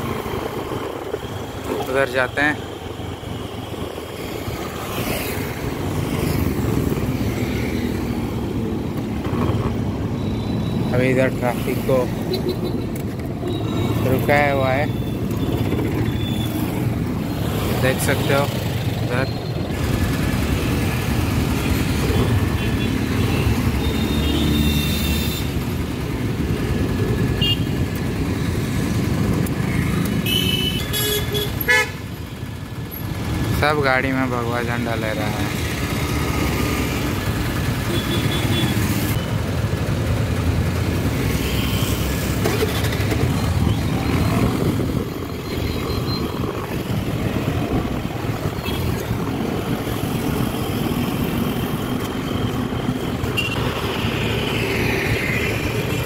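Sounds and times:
road traffic rumble: 0:00.0 - 0:56.0
vehicle horns honking: 0:27.4 - 0:27.8, 0:30.2 - 0:32.0, 0:37.9 - 0:38.9, 0:53.3 - 0:53.7.

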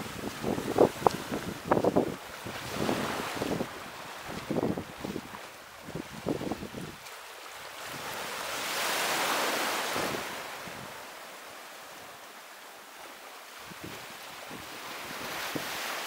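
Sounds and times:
wind buffeting microphone: 0:00.0 - 0:07.1
wave breaking on shore: 0:00.0 - 0:16.0.

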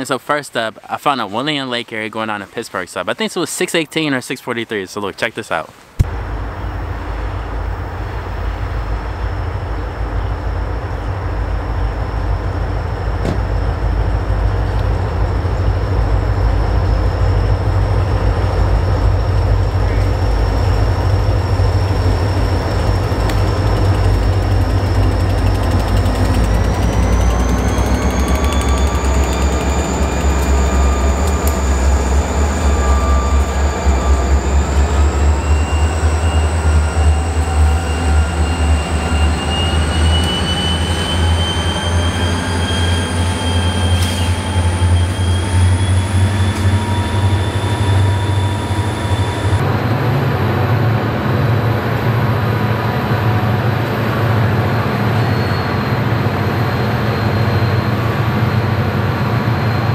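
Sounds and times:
diesel locomotive rumble: 0:06.0 - 0:59.9
distant train rumble: 0:06.0 - 0:59.9
train wheel squeal: 0:08.7 - 0:59.9.

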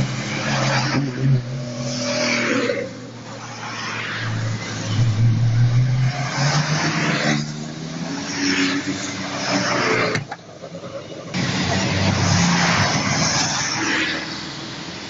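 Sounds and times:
car engines accelerating past: 0:00.0 - 0:10.2, 0:11.3 - 0:14.5.

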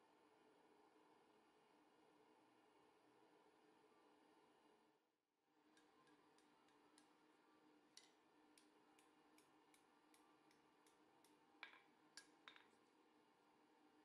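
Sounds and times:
hammer tapping on anvil: 0:08.0 - 0:12.8.

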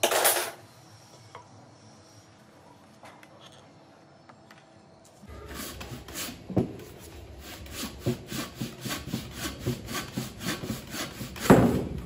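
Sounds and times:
hand saw rasping through wood: 0:07.4 - 0:11.8.

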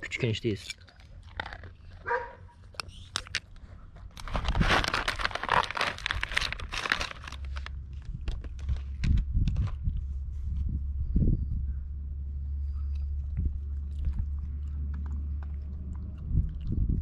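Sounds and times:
plastic packaging crinkling: 0:04.1 - 0:09.8.

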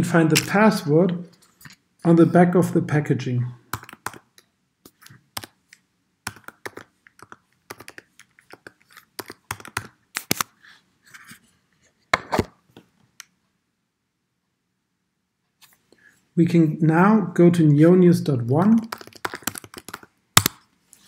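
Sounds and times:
keyboard typing: 0:03.7 - 0:04.4, 0:06.2 - 0:10.0, 0:18.8 - 0:20.6.

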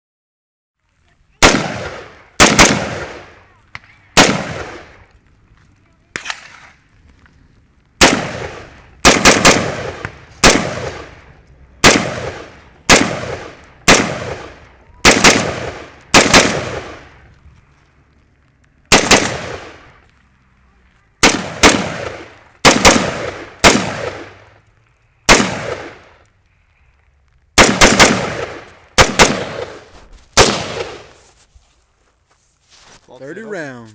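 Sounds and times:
rifle gunshots: 0:01.4 - 0:05.0, 0:06.1 - 0:06.8, 0:08.0 - 0:17.2, 0:18.9 - 0:19.9, 0:21.2 - 0:24.6, 0:25.3 - 0:26.2, 0:27.6 - 0:31.2.

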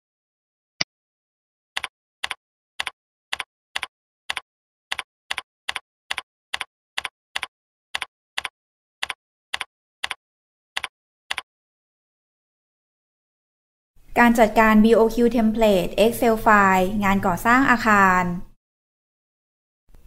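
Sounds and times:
computer keyboard typing: 0:01.8 - 0:10.2, 0:10.8 - 0:11.4.

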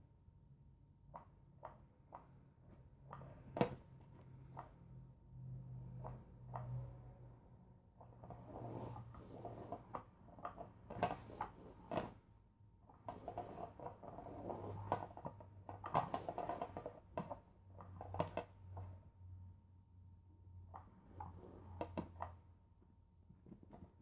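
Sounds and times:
scratchy rustling of fabric: 0:08.2 - 0:09.9.

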